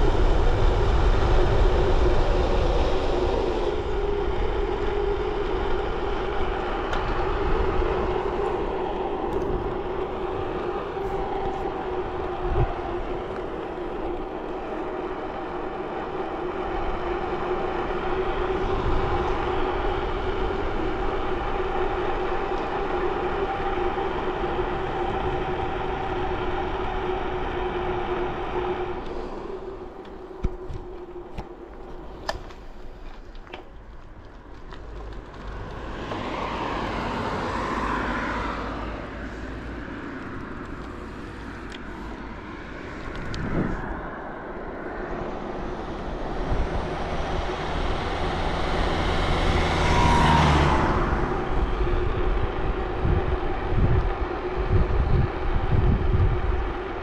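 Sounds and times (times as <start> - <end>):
bicycle road noise hum: 0.0 - 57.0
rush of air: 36.6 - 57.0.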